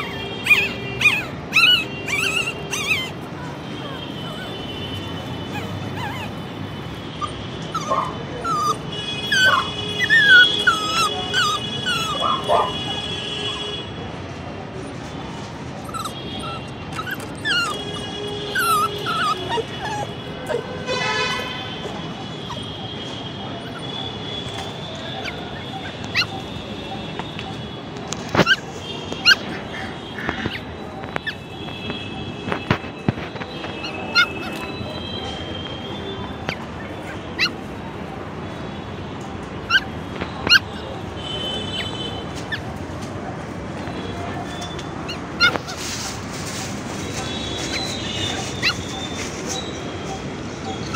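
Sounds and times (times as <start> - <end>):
puppies yipping and whimpering: 0.0 - 12.7, 15.8 - 20.7, 22.2 - 22.8, 23.5 - 31.6, 32.8 - 34.8, 36.4 - 37.8, 39.6 - 40.9, 41.8 - 42.8, 44.4 - 50.9
steady background noise: 0.0 - 50.9.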